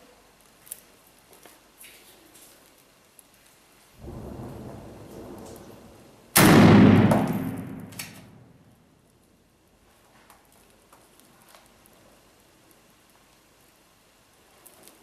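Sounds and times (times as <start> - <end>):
loud echoing blast: 4.0 - 8.7
low rumble of combat: 4.0 - 8.7
smaller crack: 4.0 - 8.8.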